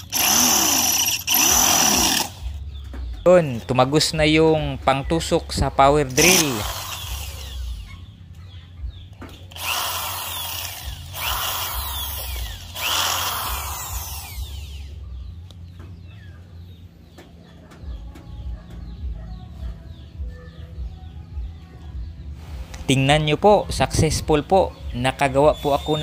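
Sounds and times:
electric drill running: 0.0s - 2.6s, 6.1s - 8.0s, 9.5s - 15.0s.

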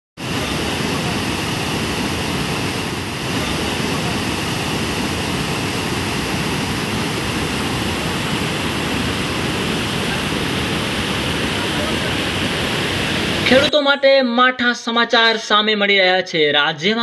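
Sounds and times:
heavy water rushing: 0.2s - 13.7s.

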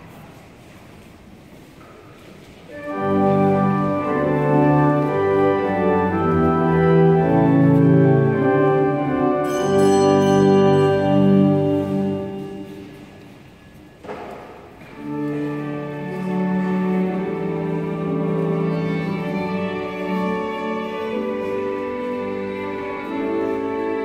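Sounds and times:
church organ chords: 2.7s - 13.4s, 15.0s - 22.2s.

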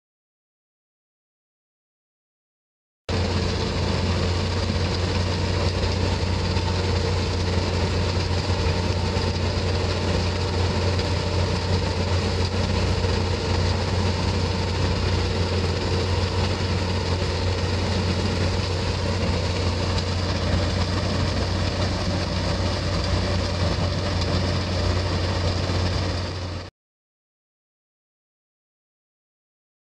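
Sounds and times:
crushing machinery droning: 3.1s - 26.7s.

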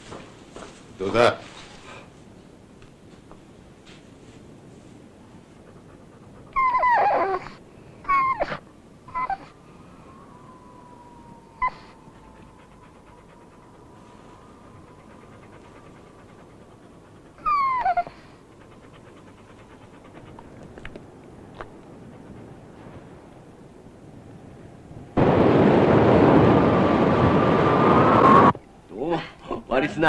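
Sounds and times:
dog whining: 5.6s - 22.7s.

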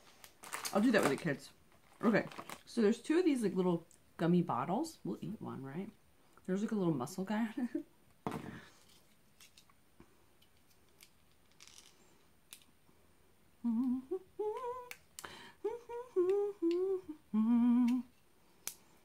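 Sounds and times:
woman humming: 13.6s - 15.0s, 15.6s - 18.2s.

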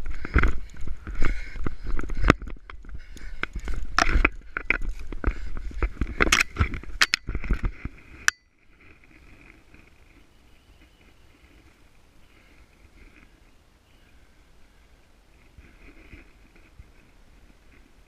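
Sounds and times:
camera knocking and scraping: 0.2s - 10.2s.

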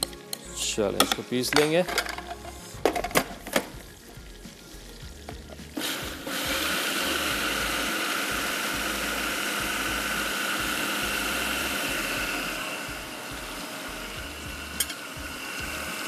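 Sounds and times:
electric grinder running: 5.8s - 16.0s.

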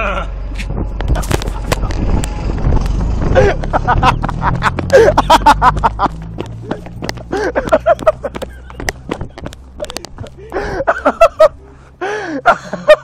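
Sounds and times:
boys laughing breathlessly: 3.2s - 13.0s.

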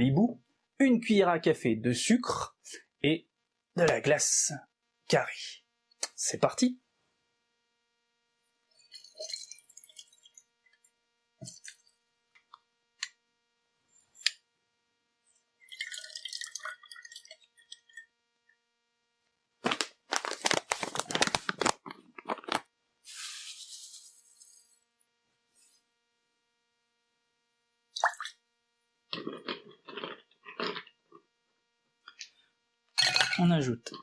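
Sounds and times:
sugar pouring into shaker: 8.8s - 10.4s, 15.6s - 18.0s, 23.1s - 24.8s
plastic pouch crinkling: 19.6s - 24.6s.

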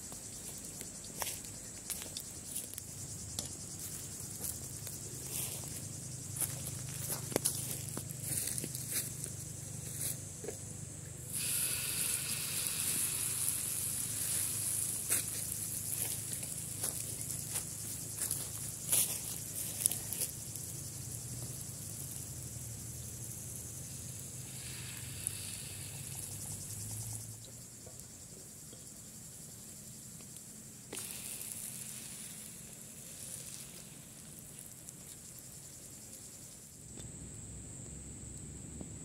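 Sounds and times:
insects trilling: 0.0s - 39.0s
batter sizzling in a pan: 11.3s - 27.4s, 30.9s - 36.4s.

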